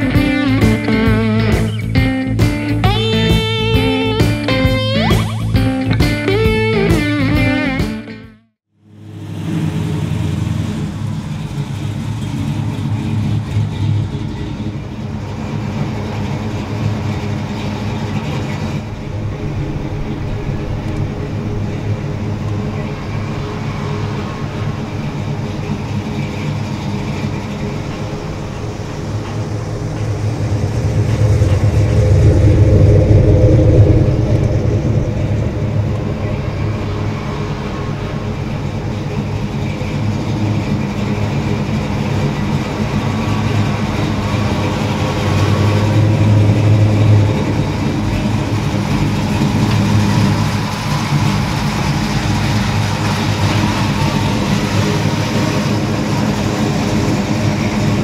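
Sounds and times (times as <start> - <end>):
car engine deep rumble: 0.0 - 7.9, 8.7 - 58.0.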